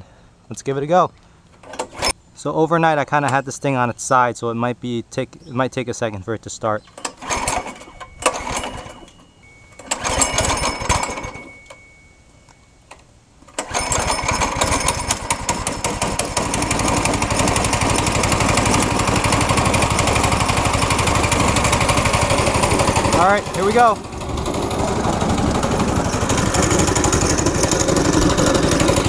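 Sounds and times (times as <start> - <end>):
recoil starter pull: 1.5 - 2.2, 6.9 - 11.8, 12.9 - 29.0
go-kart engine running: 7.0 - 9.2, 9.8 - 11.5, 13.6 - 29.0.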